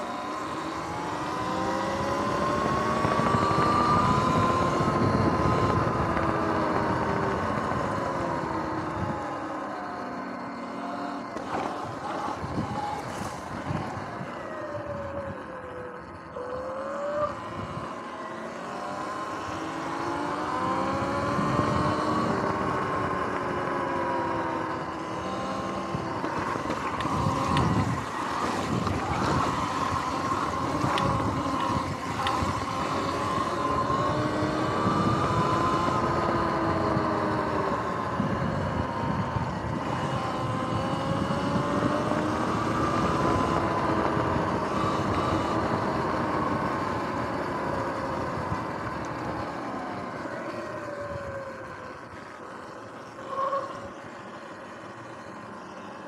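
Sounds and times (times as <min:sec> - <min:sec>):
electric motor whining: 0:00.0 - 0:56.0.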